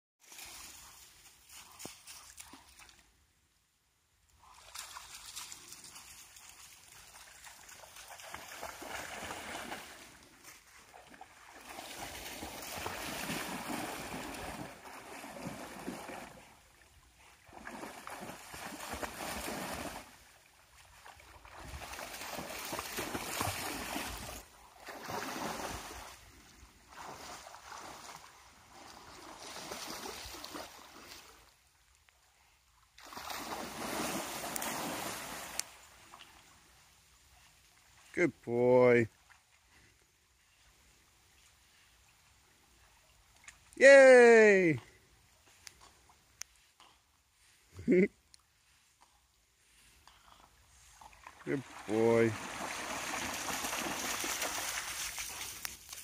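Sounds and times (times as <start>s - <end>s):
dog splashing through water: 4.5s - 16.7s, 17.4s - 26.2s, 26.9s - 31.4s, 33.0s - 36.4s, 50.8s - 56.0s.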